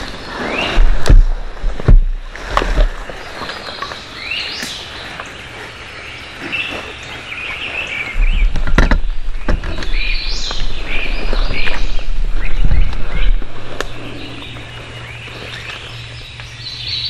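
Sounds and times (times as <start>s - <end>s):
birds chirping: 0.0s - 17.0s
movement in dry leaves: 0.0s - 17.0s
knocks and thumps of gear: 0.8s - 3.0s, 8.2s - 11.8s.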